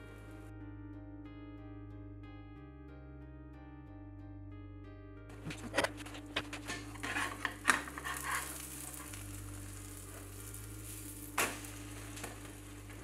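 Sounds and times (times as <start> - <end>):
spatula scraping a pan: 5.4 - 13.0
food sizzling in a pan: 7.0 - 13.0.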